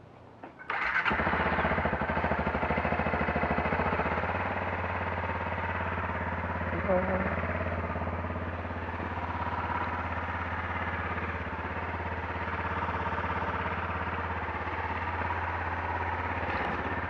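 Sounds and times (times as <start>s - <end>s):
motorcycle engine idling: 0.7s - 17.0s.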